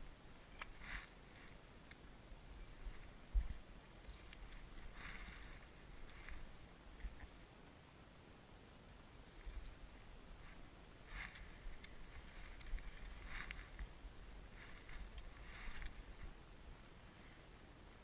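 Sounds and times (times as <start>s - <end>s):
soft rustles: 0.6s - 1.6s, 2.6s - 7.4s, 9.3s - 16.5s.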